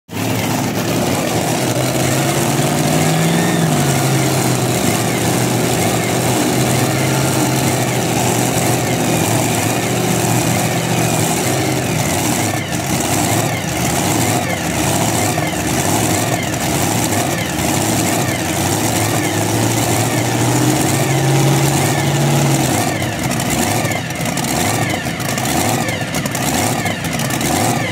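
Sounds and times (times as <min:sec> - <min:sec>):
loud engines idling: 0:00.1 - 0:27.9.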